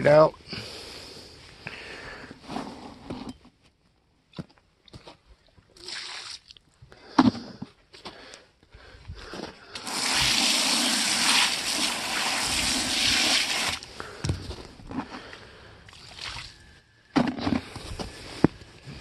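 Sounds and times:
hose spray hitting rubber bucket: 9.8 - 13.8.

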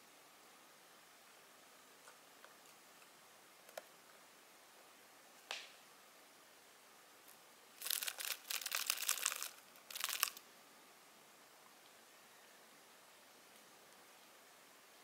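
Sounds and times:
exoskeleton crackling and crunching: 7.8 - 10.4.

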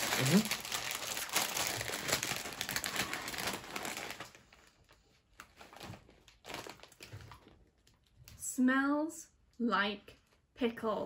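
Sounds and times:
crisp packet crinkling: 0.0 - 8.2.

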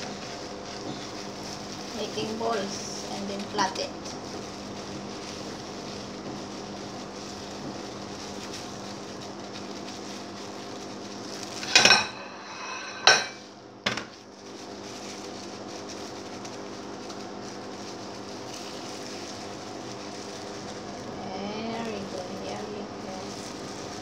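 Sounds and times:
steady low hum: 0.0 - 24.0
metal bowl clanging: 11.6 - 13.4.

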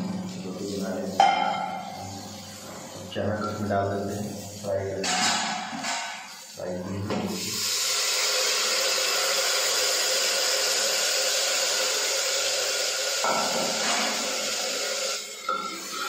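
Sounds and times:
chickpeas sizzling in hot oil: 7.4 - 16.0.

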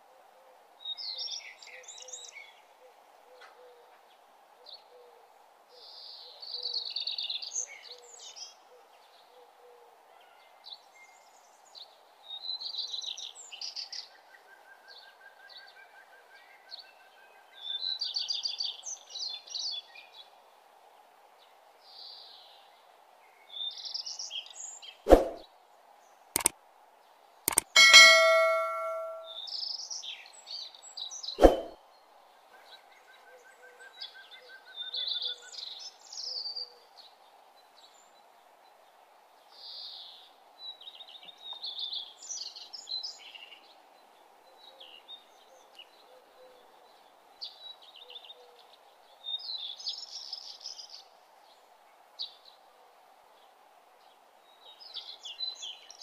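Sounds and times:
faint steady hiss: 0.0 - 56.0
small birds chirping: 26.1 - 26.5
sharp clicks: 27.5 - 29.3
bell ding: 27.5 - 29.4.

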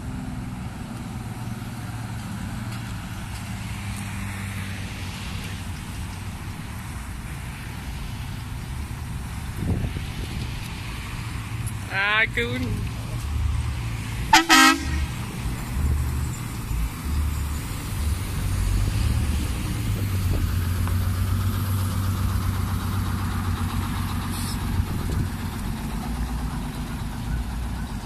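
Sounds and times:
bus engine rumbling: 0.0 - 28.0
bus horn double blast: 14.3 - 15.2.

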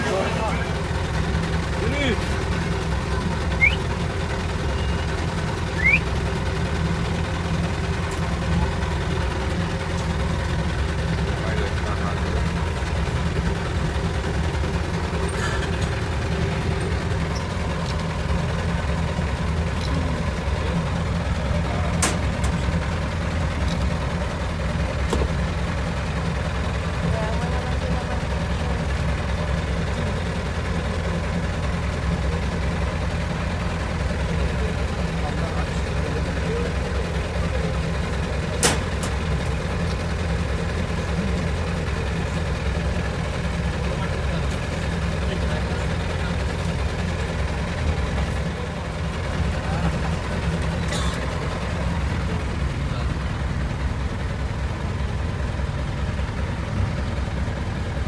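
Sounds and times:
vehicle engine idling: 0.0 - 58.0
short rising chirp: 5.7 - 6.0.

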